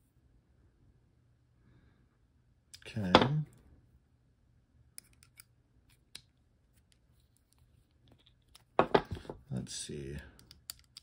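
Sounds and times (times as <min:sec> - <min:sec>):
multitool metal clicks and taps: 0:10.4 - 0:11.0.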